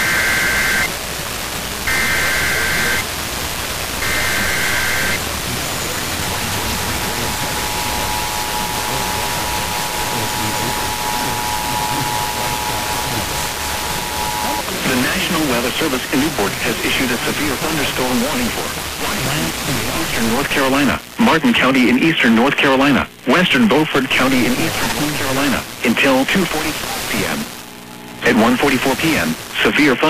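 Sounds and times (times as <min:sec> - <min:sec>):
radio static hiss: 0:00.0 - 0:30.0
shrill data tone bursts: 0:01.9 - 0:03.0, 0:04.0 - 0:05.2, 0:05.8 - 0:19.0.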